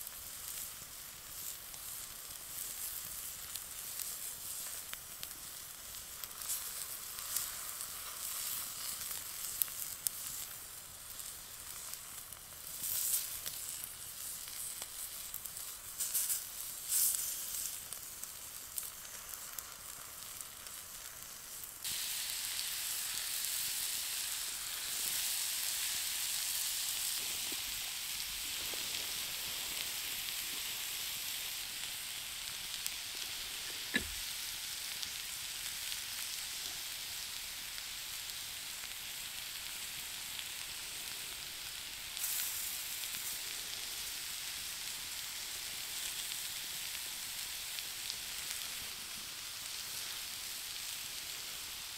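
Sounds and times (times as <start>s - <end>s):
steak sizzling on hot stone: 0.0s - 51.9s
sharp pops: 33.7s - 34.3s.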